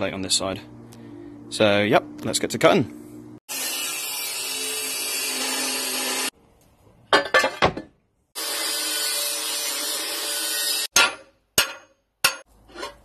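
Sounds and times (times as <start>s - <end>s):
angle grinder cutting steel: 3.5s - 6.3s, 8.4s - 10.9s.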